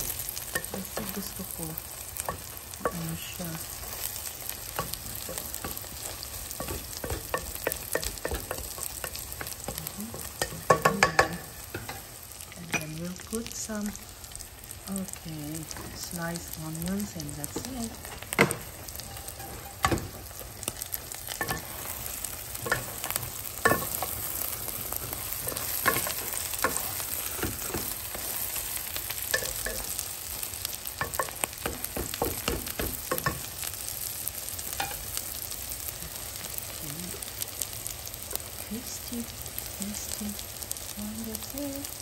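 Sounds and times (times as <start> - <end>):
omelette sizzling in a frying pan: 0.0 - 42.0
spatula knocking and scraping pan: 2.1 - 13.0, 17.0 - 30.0, 30.9 - 33.6.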